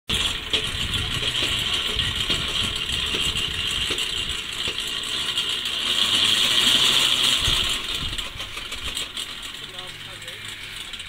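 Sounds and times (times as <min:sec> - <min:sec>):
cicadas buzzing: 0:09.6 - 0:11.0.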